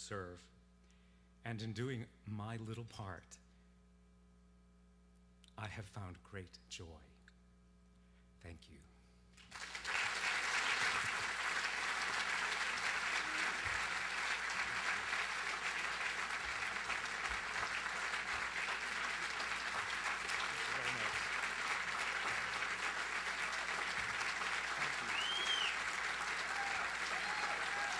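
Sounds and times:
audience applauding: 9.4s - 27.9s.

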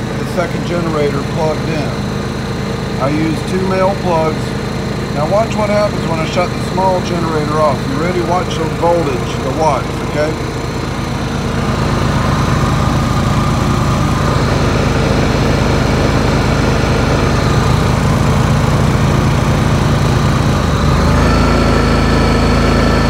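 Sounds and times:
generators running: 0.0s - 23.0s.

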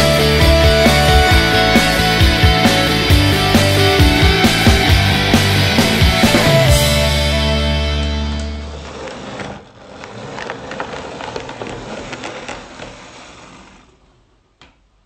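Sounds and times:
wheels clicking on track: 8.4s - 14.8s.

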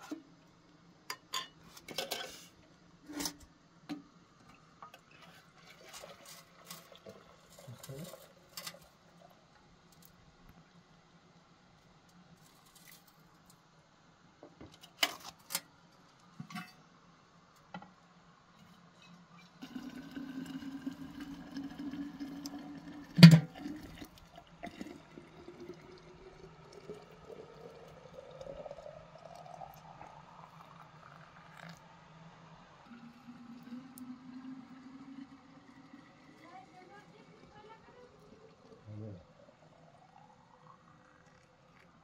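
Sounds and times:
water pouring into metal flask: 5.2s - 9.1s, 19.4s - 31.8s, 32.9s - 38.8s.

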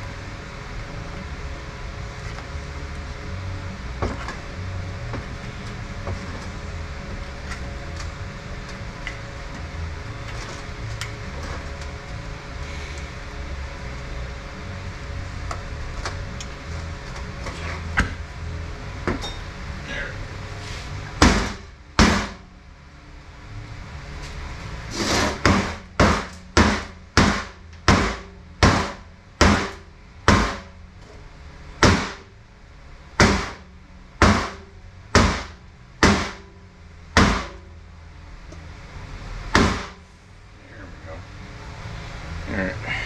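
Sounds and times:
sharp metal knocks: 25.4s - 30.7s, 33.2s - 33.6s, 34.2s - 36.6s.

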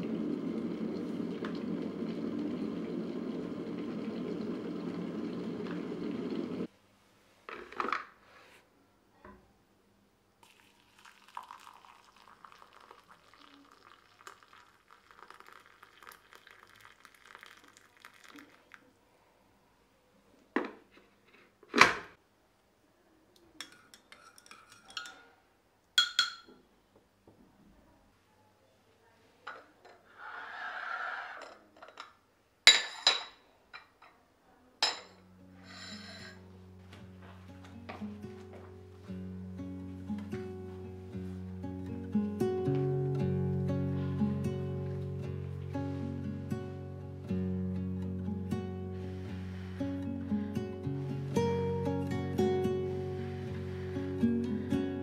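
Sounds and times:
electric kettle boiling: 0.0s - 6.7s, 10.4s - 18.8s
hot water pouring into a mug: 0.0s - 6.7s, 10.4s - 18.9s
spoon clinking on ceramic: 23.6s - 25.3s, 26.0s - 26.6s, 34.8s - 36.4s
ceramic bowl scraping on counter: 30.0s - 31.7s, 35.6s - 36.4s.

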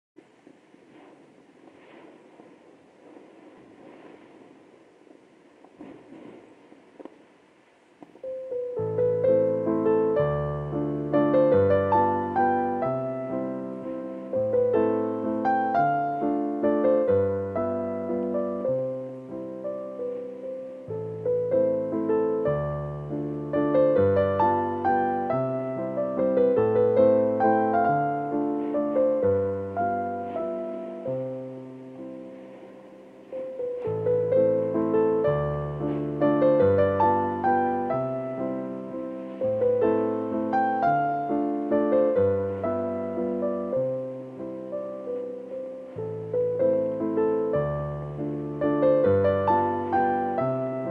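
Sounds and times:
slow solo piano music: 8.0s - 50.9s.

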